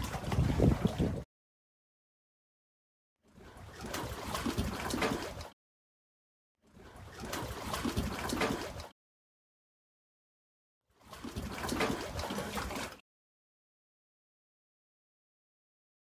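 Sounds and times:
trickling lapping water: 0:00.0 - 0:01.3, 0:03.2 - 0:05.6, 0:06.6 - 0:09.0, 0:10.9 - 0:13.0.

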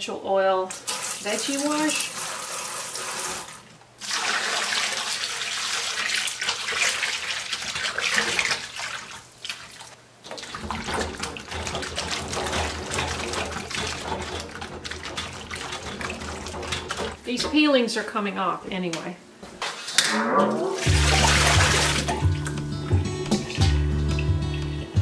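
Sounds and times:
hands scrubbing vegetables in water: 0:01.0 - 0:02.8, 0:04.0 - 0:17.2, 0:20.8 - 0:24.3
water pouring into metal bowl: 0:20.8 - 0:22.6.

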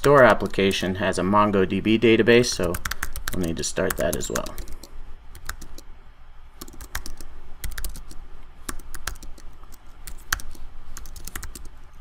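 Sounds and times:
typing on computer keyboard: 0:02.6 - 0:05.8, 0:06.6 - 0:11.7.

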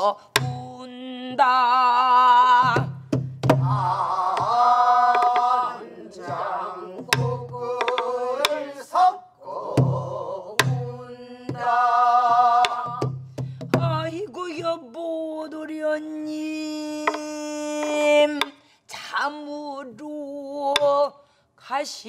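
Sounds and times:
barrel drum palm thumps: 0:02.7 - 0:05.5
group singing with vibrato: 0:03.6 - 0:13.2.

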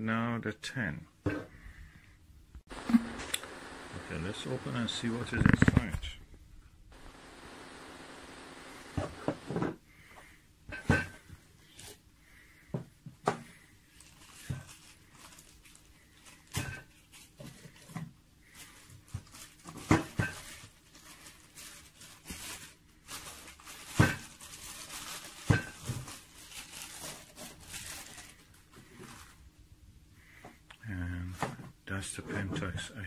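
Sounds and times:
plastic bag crinkling: 0:02.9 - 0:06.3, 0:13.9 - 0:17.9, 0:18.5 - 0:29.4.

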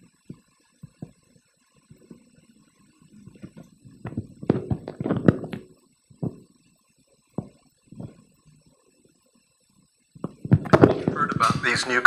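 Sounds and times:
knocks and taps on laptop: 0:00.3 - 0:01.2, 0:03.4 - 0:06.4, 0:07.4 - 0:08.2, 0:10.2 - 0:11.6.

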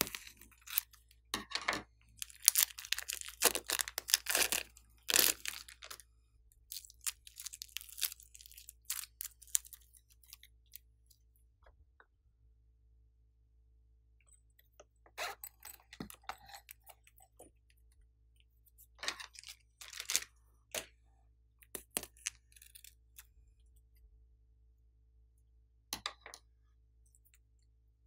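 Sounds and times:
plastic crinkling: 0:02.2 - 0:06.0, 0:06.7 - 0:09.8, 0:19.2 - 0:20.3.

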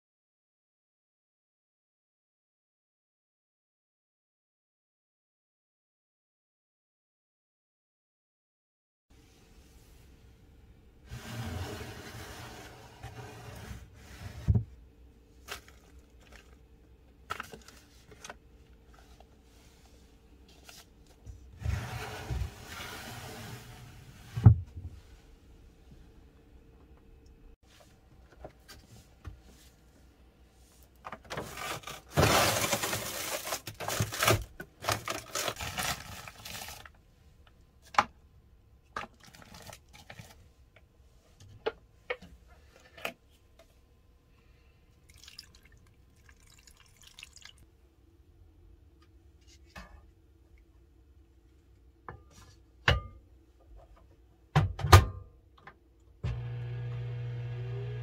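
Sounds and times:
faint steady hum: 0:09.2 - 0:54.6
water pouring into a cup: 0:45.0 - 0:47.6.

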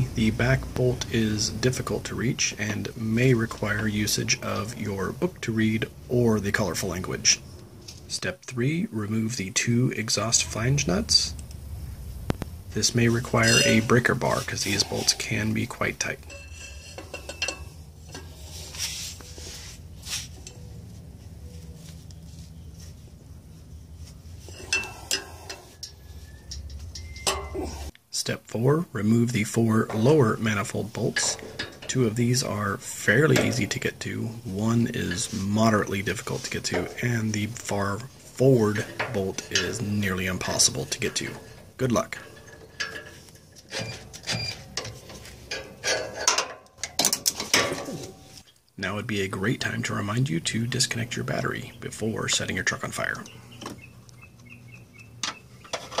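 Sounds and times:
steady low hum: 0:00.0 - 0:47.0
short high squeaks: 0:43.7 - 0:44.7.

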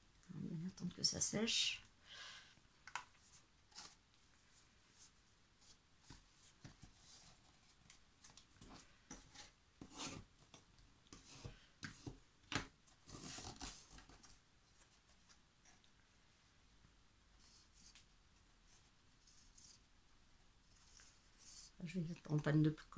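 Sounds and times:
cardboard and paper rustling: 0:12.9 - 0:15.4.

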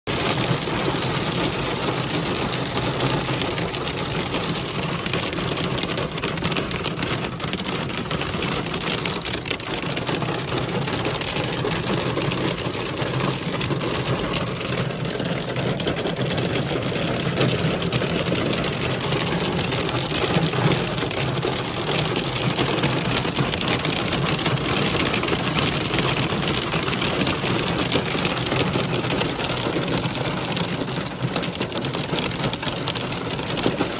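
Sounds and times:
rain and hail on a car roof: 0:00.1 - 0:33.9.

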